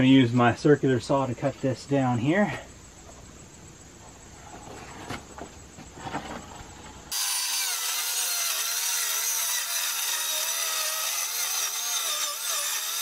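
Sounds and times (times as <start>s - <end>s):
circular saw cutting wood: 7.1s - 13.0s.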